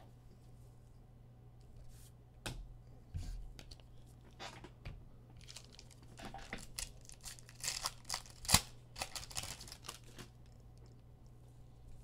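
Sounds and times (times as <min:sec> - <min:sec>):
card wrappers tearing and crinkling: 0:05.4 - 0:10.4.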